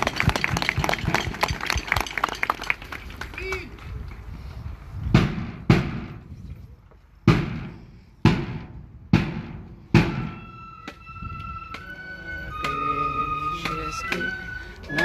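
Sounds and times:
marching band drum beats: 0:00.0 - 0:02.4
flutes holding a note: 0:10.3 - 0:15.0.

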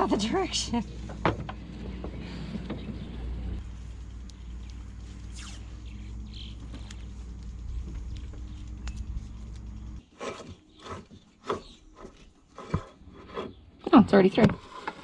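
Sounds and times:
low hum: 0:00.0 - 0:10.1
rope rubbing and scraping: 0:03.6 - 0:13.6.

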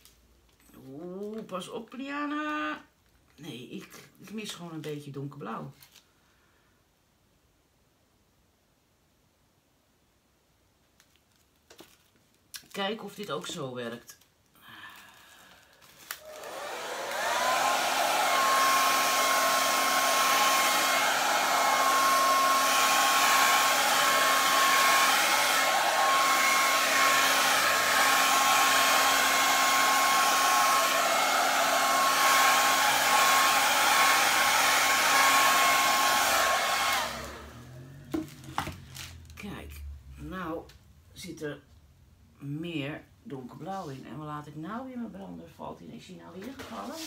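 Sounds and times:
hair dryer blowing: 0:15.5 - 0:39.3.

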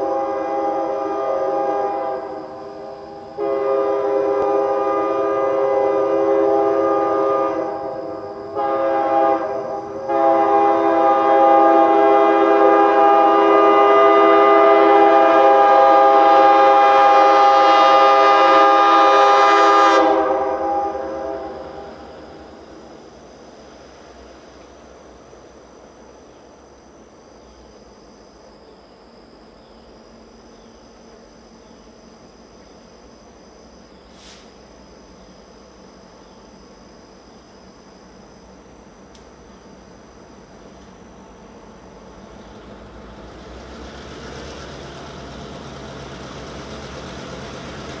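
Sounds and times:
train air horn blasts: 0:00.0 - 0:22.9.

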